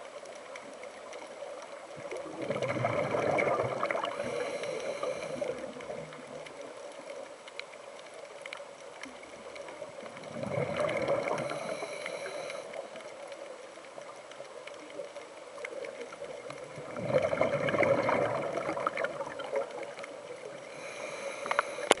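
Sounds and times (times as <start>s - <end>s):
faint clicks: 0.0s - 22.0s
quiet hiss: 0.0s - 22.0s
bubbles gurgling underwater: 1.8s - 4.5s, 9.2s - 11.8s, 15.7s - 20.5s.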